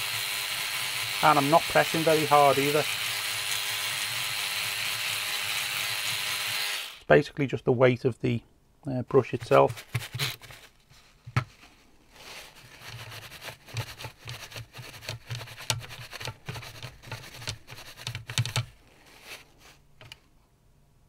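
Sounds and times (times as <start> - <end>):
tissue rustling on circuit board: 9.2 - 20.1.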